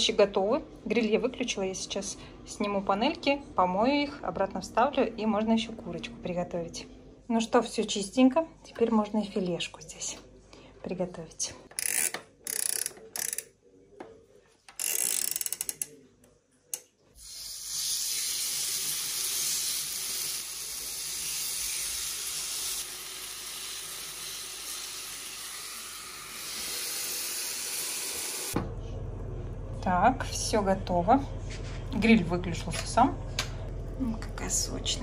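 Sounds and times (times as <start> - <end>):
chicken sizzling on a grill: 17.3 - 28.6.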